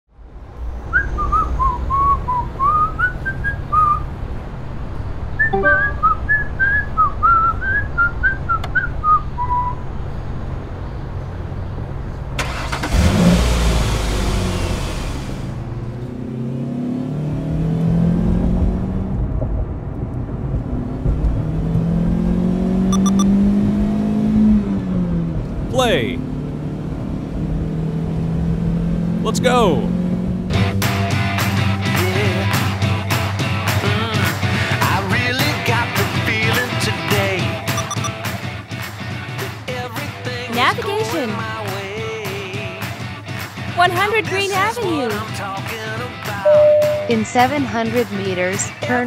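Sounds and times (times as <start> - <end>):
car engine hum: 0.2 - 49.0
person whistling a tune: 5.4 - 9.8.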